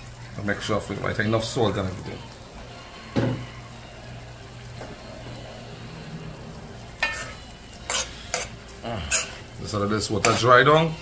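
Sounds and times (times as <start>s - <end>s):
food sizzling in a pot: 0.0s - 11.0s
steady low hum: 2.2s - 9.7s
metal spoon scraping a pot: 7.0s - 9.5s, 10.2s - 10.5s.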